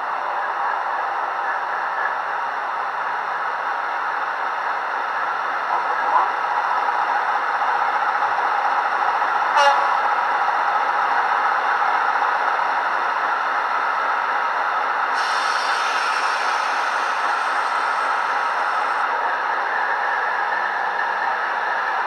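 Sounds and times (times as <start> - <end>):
hiss: 15.1 - 19.1
model train diesel engine idling: 15.2 - 19.7.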